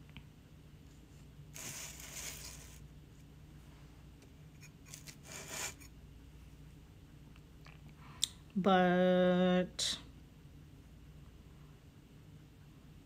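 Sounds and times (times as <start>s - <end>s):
glaze brush rubbing: 1.6s - 2.9s, 4.5s - 5.9s
ceramic palette scraping on table: 4.6s - 5.9s.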